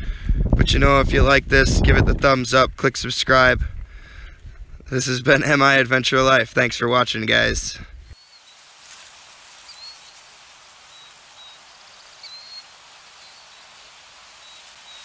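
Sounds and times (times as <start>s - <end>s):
soft hiss like light rain: 2.4s - 15.0s
bird chirps: 8.0s - 8.6s, 9.6s - 13.8s, 14.4s - 15.0s.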